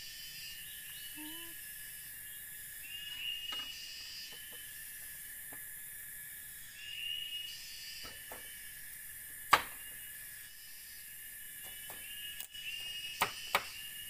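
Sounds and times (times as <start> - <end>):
insect drone: 0.0 - 14.0
machete chopping wood: 9.5 - 9.8, 13.2 - 13.8.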